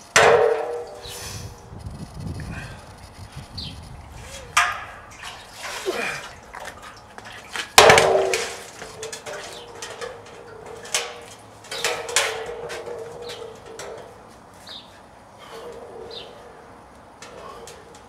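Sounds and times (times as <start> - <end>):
steel keg clanging and ringing: 0.0 - 1.1, 4.4 - 14.3.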